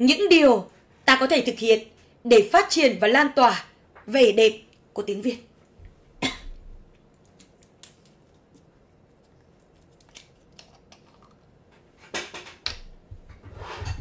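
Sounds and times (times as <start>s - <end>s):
hands handling clicks and rustles: 6.9s - 12.9s.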